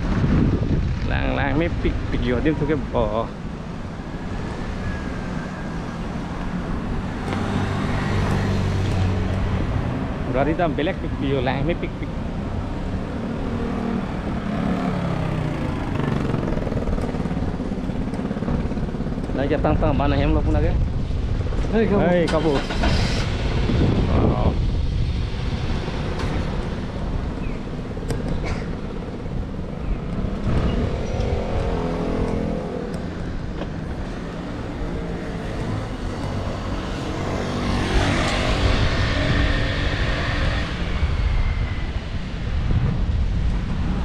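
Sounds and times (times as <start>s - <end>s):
road traffic: 0.0s - 44.0s
vehicle passing close: 28.7s - 44.0s.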